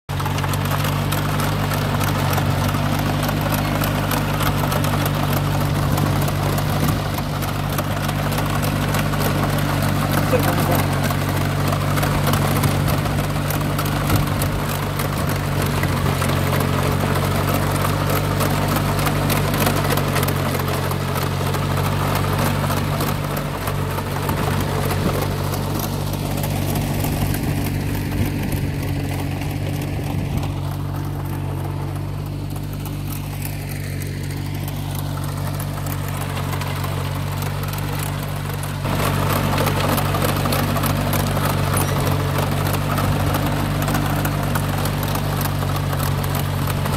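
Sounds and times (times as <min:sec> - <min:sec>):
rotary tiller churning soil: 0:00.1 - 0:46.9
tractor engine running: 0:00.1 - 0:46.9.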